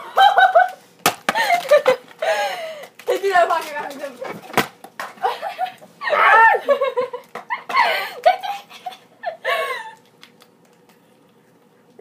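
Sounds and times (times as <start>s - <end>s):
people laughing and giggling: 5.2s - 10.0s.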